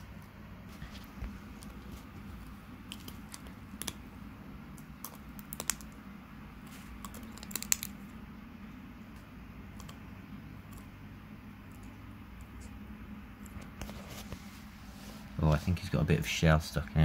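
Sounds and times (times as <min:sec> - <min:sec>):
low steady hum: 0:00.0 - 0:17.0
lizard crunching snail shell: 0:04.7 - 0:06.0, 0:06.6 - 0:08.1.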